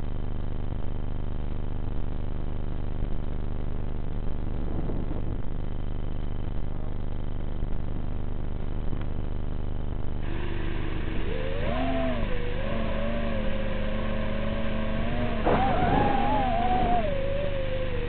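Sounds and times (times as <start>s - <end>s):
drone propellers whining: 10.2s - 18.0s.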